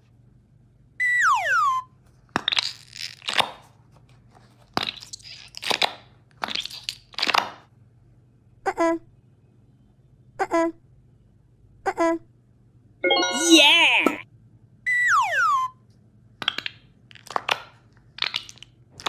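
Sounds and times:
squishy stress ball crunching: 2.2s - 3.8s, 4.6s - 7.7s, 16.4s - 19.0s.

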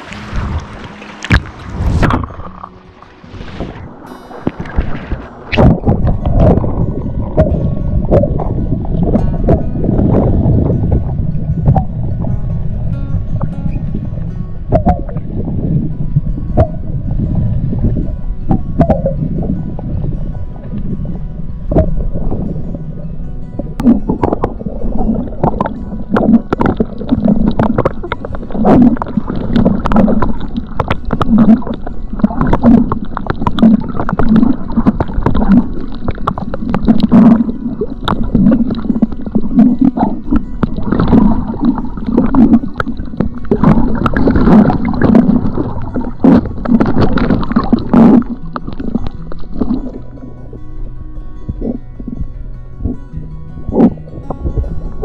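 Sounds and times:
bubble clicks and crackles: 0.0s - 12.4s, 13.4s - 22.5s, 23.6s - 50.6s, 51.5s - 55.0s
underwater gurgling and sloshing: 0.0s - 55.0s.

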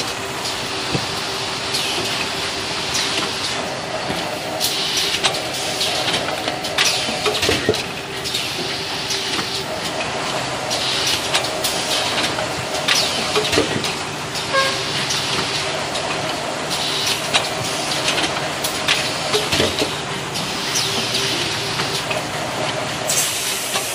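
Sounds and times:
machine clicks and clatter: 0.0s - 23.9s
packing machine humming: 0.0s - 23.9s
hiss: 4.4s - 6.2s, 23.1s - 23.9s.

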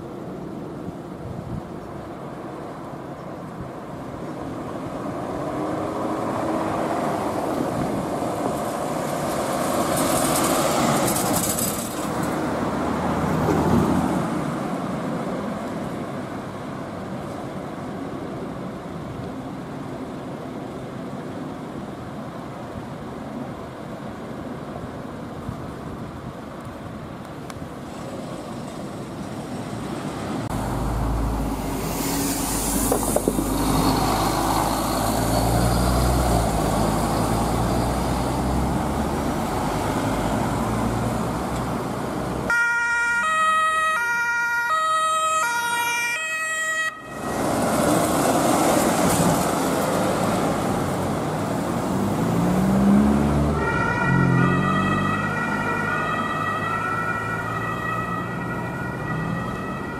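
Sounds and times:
traffic: 0.0s - 59.9s
vehicle engine and tyre noise: 0.0s - 59.9s
two-tone ambulance siren: 42.5s - 47.4s, 53.5s - 59.9s.

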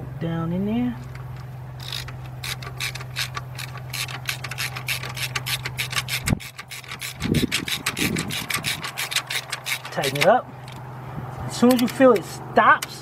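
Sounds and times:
ratchet clicking rapidly: 1.8s - 10.8s.

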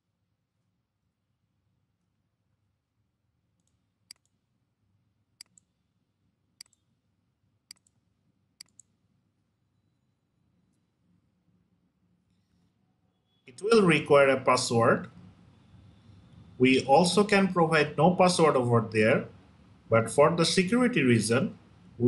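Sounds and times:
faint computer mouse clicks: 3.6s - 4.4s, 6.6s - 6.9s, 7.7s - 8.0s, 8.6s - 8.9s.

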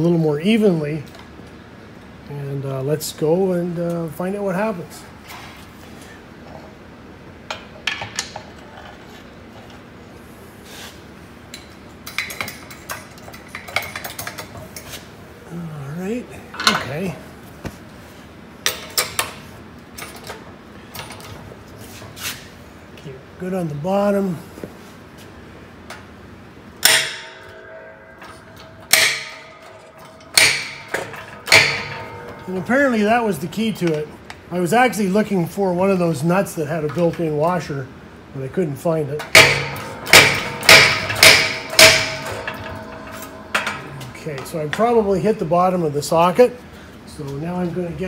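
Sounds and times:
steel parts clinking and knocking: 26.8s - 32.9s, 39.2s - 44.9s
sharp metallic bangs: 26.8s - 34.1s, 39.1s - 46.0s.

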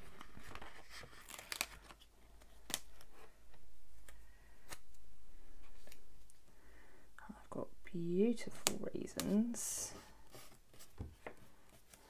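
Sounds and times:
stickers rustling and crackling: 0.0s - 6.4s.

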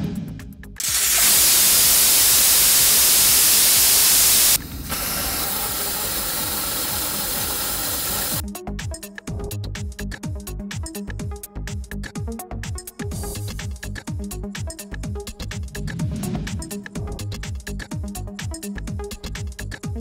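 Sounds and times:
air hissing from tyre valve: 0.8s - 8.4s
quieter silenced air hiss: 0.8s - 8.4s.

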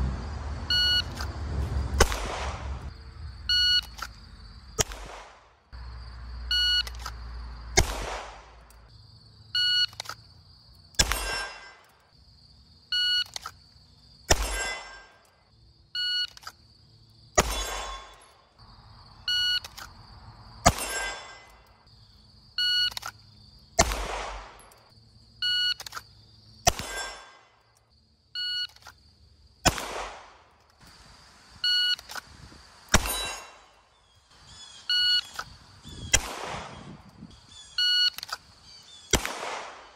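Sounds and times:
pistol shot with echo: 2.0s - 2.8s, 4.8s - 5.5s, 7.8s - 8.6s, 11.0s - 11.8s, 14.3s - 15.0s, 17.4s - 18.2s, 20.6s - 21.4s, 23.8s - 24.7s, 26.7s - 27.4s, 29.6s - 30.5s, 36.1s - 37.0s, 39.1s - 39.9s.

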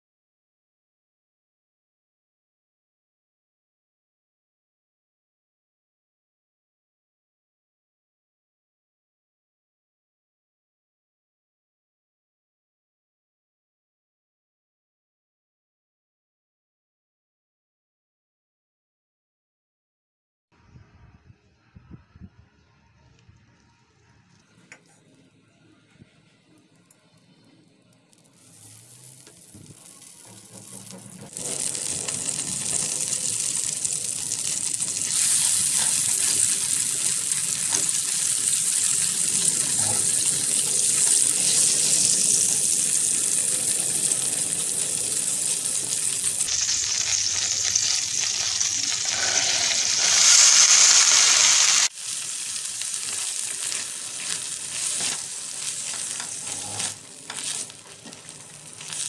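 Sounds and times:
butter sizzling in a pan: 28.2s - 59.0s
stirring corn kernels in a pan: 47.8s - 59.0s.

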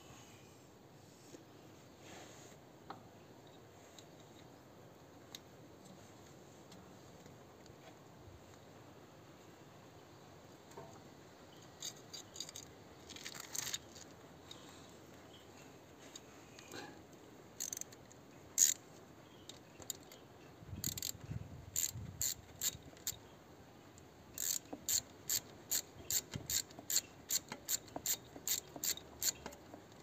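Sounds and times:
socket ratchet clicking: 17.6s - 18.8s, 20.8s - 23.2s, 24.4s - 30.0s.

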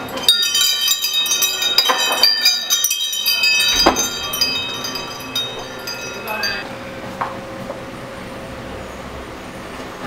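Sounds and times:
metal wind chime ringing: 0.0s - 6.9s.

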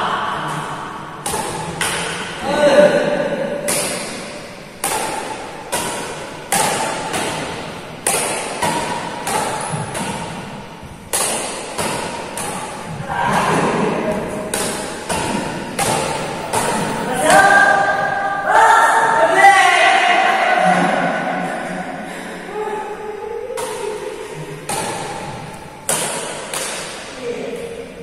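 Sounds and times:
badminton rackets hitting shuttlecock: 0.5s - 2.4s, 3.2s - 18.2s, 23.5s - 27.8s.

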